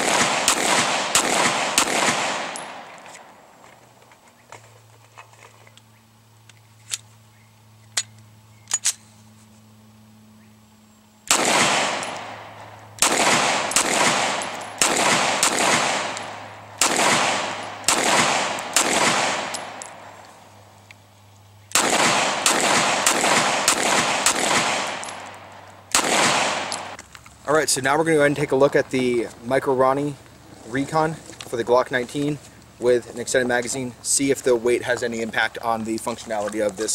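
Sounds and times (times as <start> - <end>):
pistol shots: 0.0 - 3.0, 11.3 - 20.2, 21.7 - 27.0.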